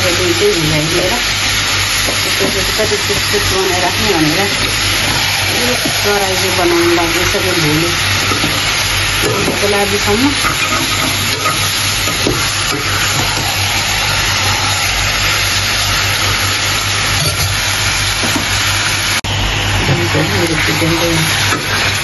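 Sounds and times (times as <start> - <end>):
chicken sizzling in oil: 0.0 - 22.0
metal spoon stirring in pan: 1.5 - 18.6.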